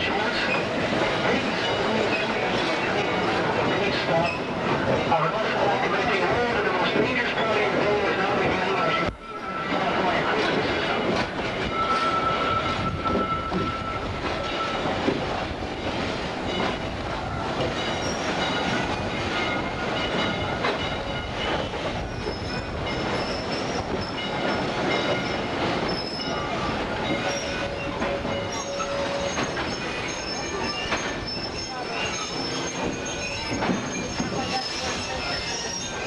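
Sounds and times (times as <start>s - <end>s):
train wheels rumbling on rail: 0.0s - 36.0s
high-pitched wheel squeals: 11.6s - 14.8s, 25.2s - 36.0s.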